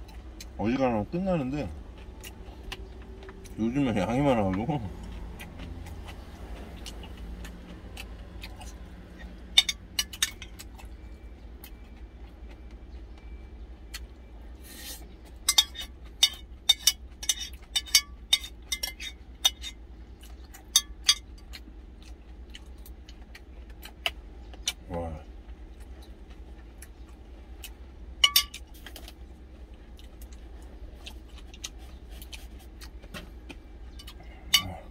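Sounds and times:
steady low hum: 0.0 - 34.9
metal spoon clinking on glass: 9.6 - 10.5, 15.5 - 19.7, 28.2 - 28.6.

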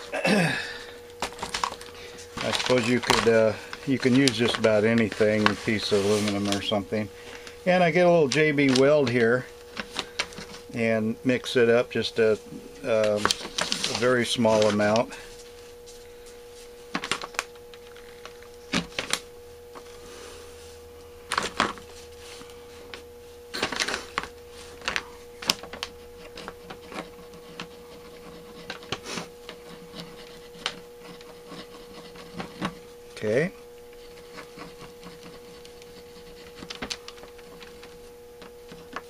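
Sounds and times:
faint steady hum: 0.0 - 39.0
epoxy scraping and tapping: 24.8 - 32.8, 33.8 - 39.0.

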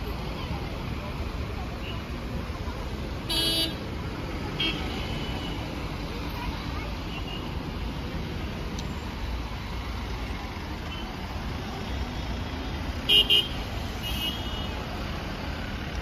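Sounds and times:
low traffic rumble: 0.0 - 16.0
faint car horn: 13.1 - 14.8.

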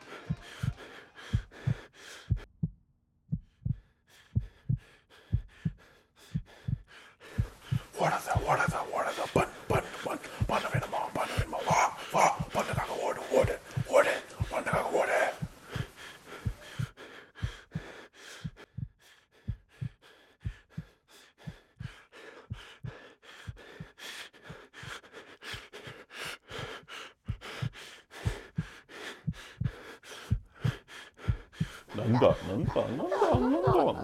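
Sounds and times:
heavy panting breaths: 0.0 - 2.5, 3.3 - 34.0
rapid heartbeat thuds: 0.0 - 34.0.

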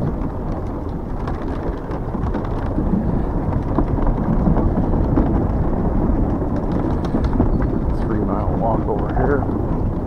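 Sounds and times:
tyre rumble: 0.0 - 10.0
wind buffeting microphone: 0.0 - 10.0.

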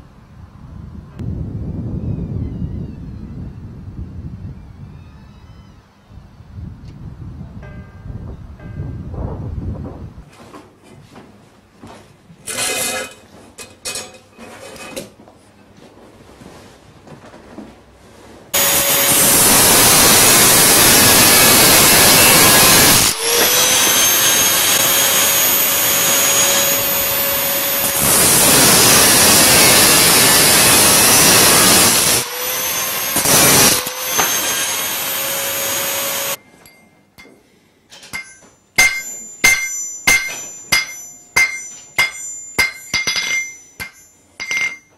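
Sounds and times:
power tool grinding steel: 18.6 - 36.4
hammer striking metal on anvil: 36.4 - 37.4, 38.0 - 44.9
light metal clinks: 36.4 - 37.4.

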